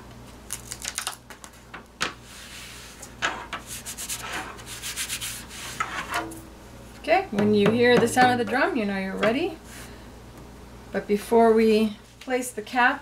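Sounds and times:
paper rustling and rubbing: 0:02.3 - 0:06.2.

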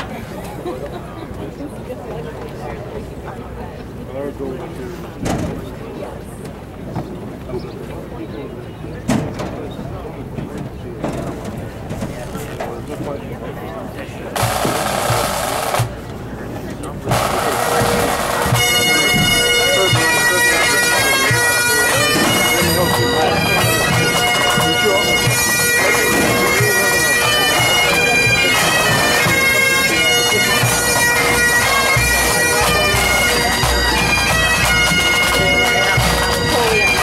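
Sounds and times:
bagpipes with drones: 0:14.3 - 0:15.9, 0:16.8 - 0:37.0
snare and bass drums: 0:14.4 - 0:16.0.

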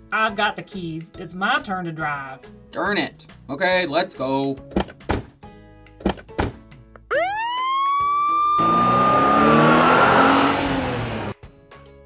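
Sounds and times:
police siren: 0:07.1 - 0:11.0
car speeding off: 0:08.2 - 0:11.4.

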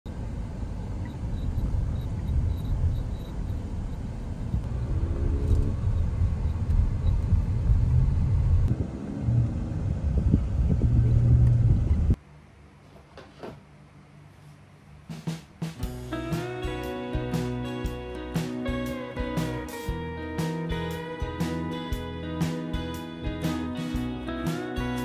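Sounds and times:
car tyres and engine drone: 0:00.1 - 0:12.3.

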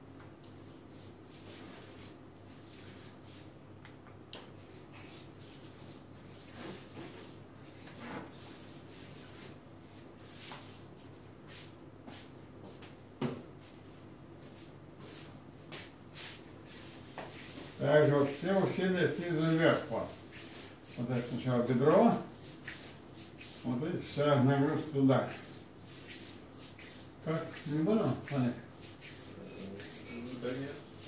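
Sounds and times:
hands rubbing oil on skin: 0:19.4 - 0:23.8, 0:24.6 - 0:31.0.

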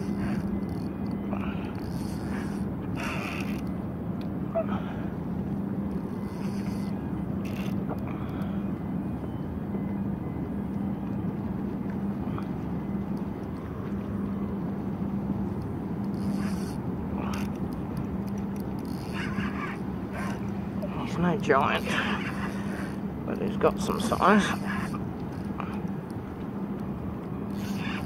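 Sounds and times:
low rumble with constant hum: 0:00.0 - 0:28.0
spinning reel winding: 0:01.8 - 0:03.7, 0:06.2 - 0:07.7, 0:16.1 - 0:17.5, 0:18.8 - 0:19.6, 0:27.5 - 0:28.0.

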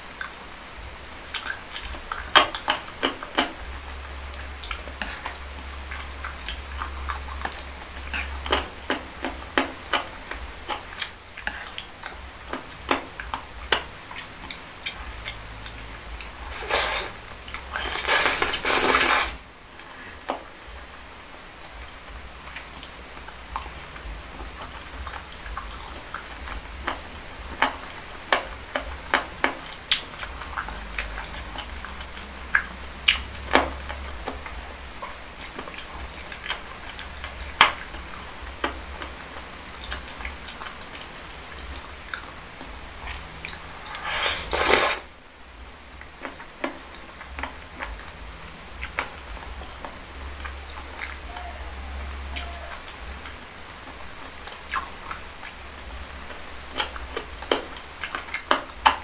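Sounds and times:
chewing with wet mouth smacks: 0:01.2 - 0:19.3, 0:21.4 - 0:44.0, 0:45.9 - 0:51.3, 0:52.3 - 0:59.0.

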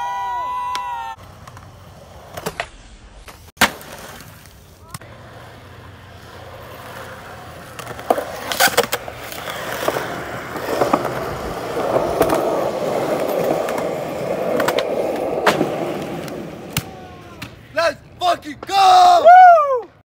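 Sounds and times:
skateboard wheels rolling on concrete: 0:00.0 - 0:20.0.

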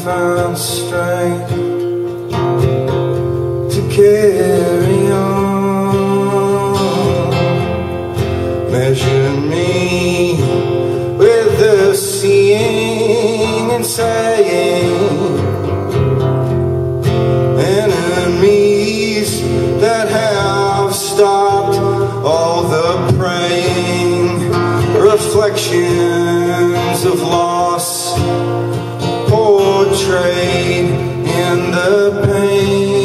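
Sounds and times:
acoustic guitar strumming: 0:00.0 - 0:33.0
person singing: 0:03.6 - 0:15.6, 0:17.5 - 0:33.0.

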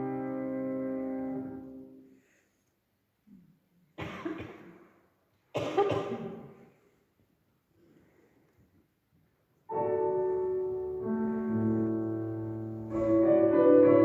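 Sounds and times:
person coughing: 0:04.0 - 0:04.9, 0:05.6 - 0:06.6
piano chord: 0:09.7 - 0:14.0.

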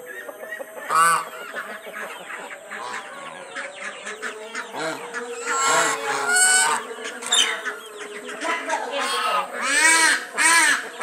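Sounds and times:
chickens clucking: 0:00.0 - 0:11.0
geese calling: 0:00.0 - 0:11.0.

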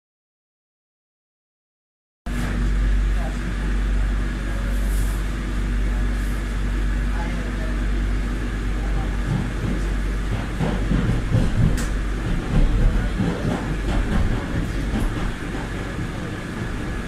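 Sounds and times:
train rumbling in tunnel: 0:02.3 - 0:17.0
wheels clacking over rails: 0:08.8 - 0:17.0.

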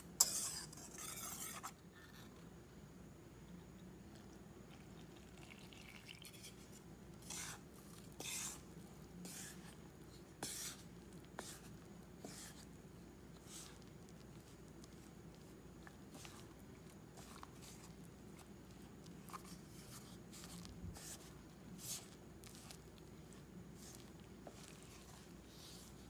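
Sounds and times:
wooden spatula scraping bowl: 0:00.2 - 0:02.4, 0:06.4 - 0:26.0
water pouring onto flour: 0:04.8 - 0:06.7.

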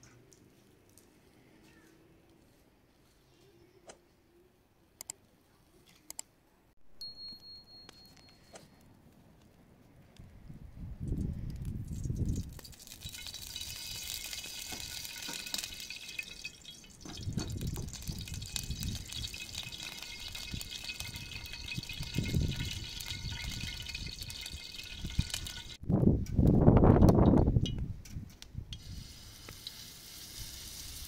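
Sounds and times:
fire crackling: 0:11.1 - 0:31.0
wood stove hissing: 0:28.8 - 0:31.0.

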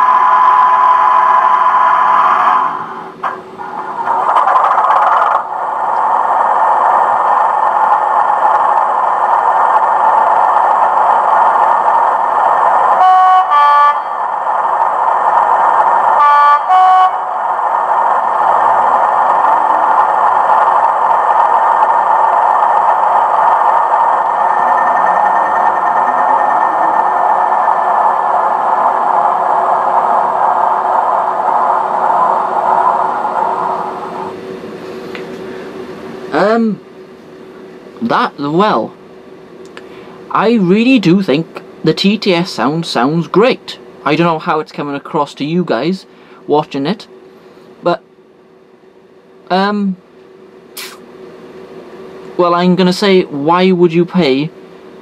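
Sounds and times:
two-tone train horn: 0:13.0 - 0:14.2, 0:16.2 - 0:17.3.

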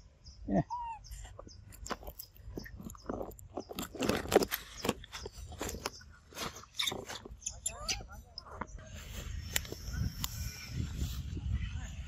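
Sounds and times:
leaves and twigs crunching: 0:01.6 - 0:10.2.

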